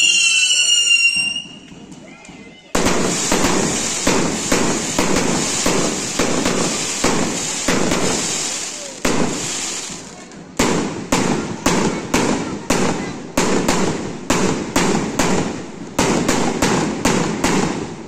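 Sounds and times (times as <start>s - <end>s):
hissing crackle: 2.8s - 10.5s
firecracker bangs: 2.8s - 18.0s.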